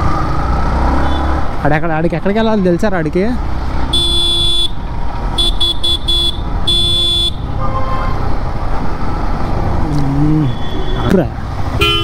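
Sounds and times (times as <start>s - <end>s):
traffic rumble: 0.0s - 12.0s
vehicle horn beeping: 3.9s - 4.8s, 5.4s - 8.2s, 11.8s - 12.0s.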